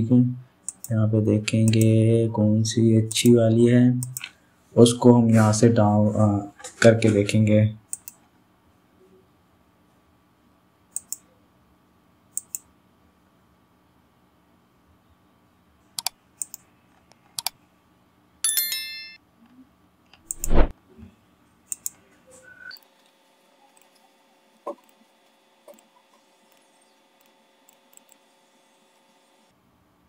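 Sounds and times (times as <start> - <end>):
computer mouse clicks: 0.7 - 0.9, 1.6 - 1.9, 4.0 - 4.4, 7.9 - 8.2, 10.9 - 11.3, 12.3 - 12.7, 16.0 - 17.6, 20.1 - 20.7, 21.7 - 22.0, 26.5 - 28.2
buzzy click: 20.2 - 20.7.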